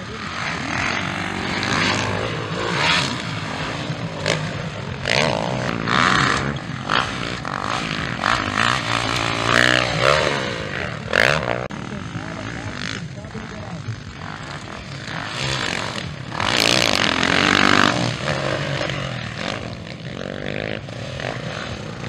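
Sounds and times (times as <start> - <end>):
dirt bike engines revving: 0.0 - 22.0.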